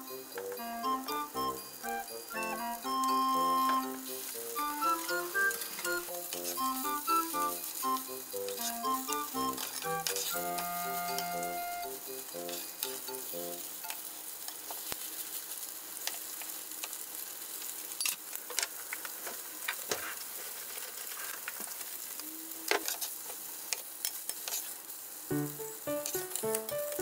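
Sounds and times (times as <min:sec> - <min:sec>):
food sizzling in frying pan: 0:00.0 - 0:27.0
turner scraping a pan: 0:03.4 - 0:11.6.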